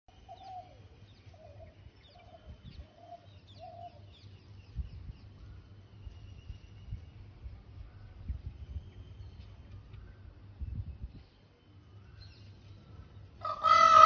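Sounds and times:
small birds chirping: 0:00.1 - 0:13.8
bird clucking calls: 0:13.4 - 0:14.0.

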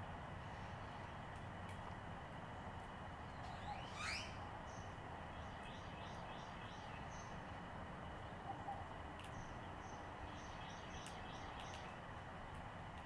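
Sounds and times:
low steady hiss: 0:00.0 - 0:13.0
light clicks: 0:11.0 - 0:13.0.

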